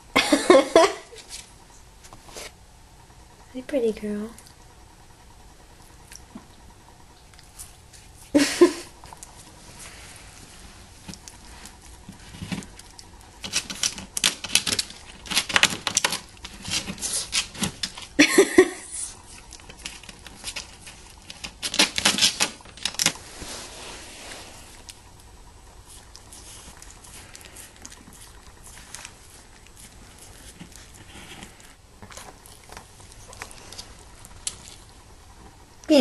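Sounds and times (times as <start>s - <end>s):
dog scratching and gnawing wall: 11.0s - 18.2s, 19.3s - 23.2s, 25.8s - 34.9s.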